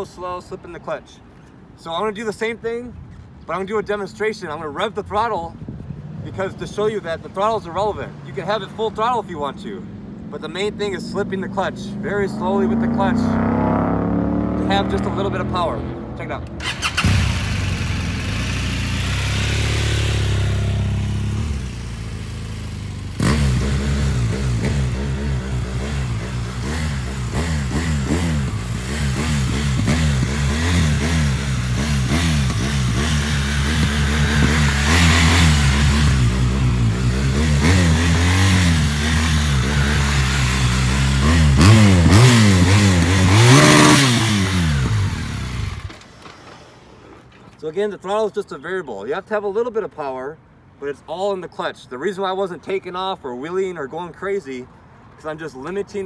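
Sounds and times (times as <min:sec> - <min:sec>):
motorcycle engine revving: 0:10.1 - 0:46.1.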